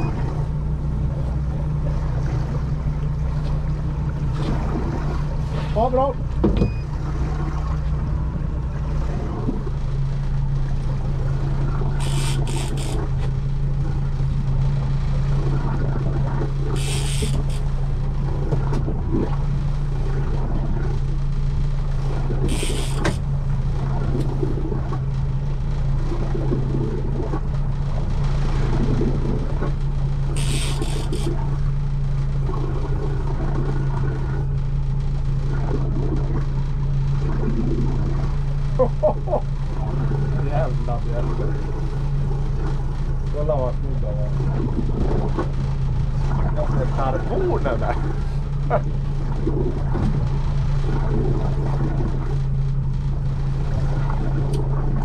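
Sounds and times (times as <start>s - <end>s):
motorboat engine humming: 0.0s - 55.0s
short hissing bursts: 16.8s - 17.6s, 30.4s - 31.3s.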